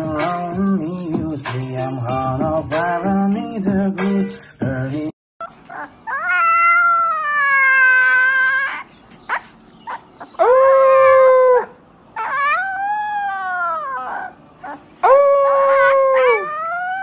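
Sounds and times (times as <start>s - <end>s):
puppy howling: 5.4s - 17.0s.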